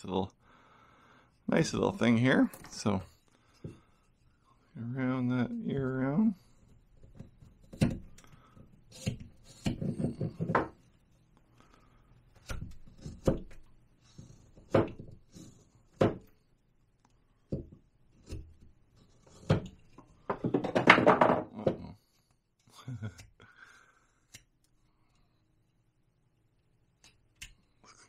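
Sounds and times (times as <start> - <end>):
carving knife scraping wood: 6.2 - 11.2, 12.1 - 16.4, 17.4 - 20.2.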